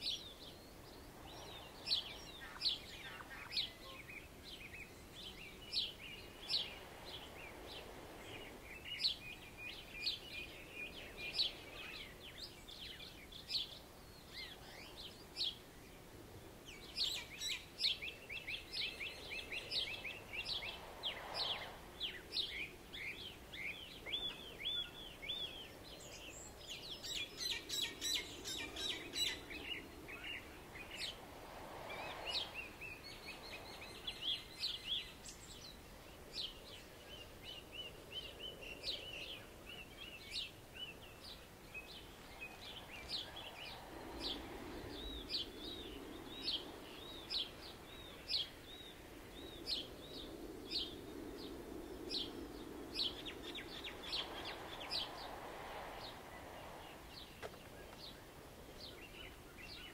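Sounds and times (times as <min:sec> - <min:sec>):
birds chirping and trilling: 0:00.0 - 0:16.0, 0:16.6 - 0:31.2, 0:31.9 - 0:59.9
waves washing: 0:18.7 - 0:24.2, 0:28.2 - 0:34.9, 0:51.6 - 0:59.5.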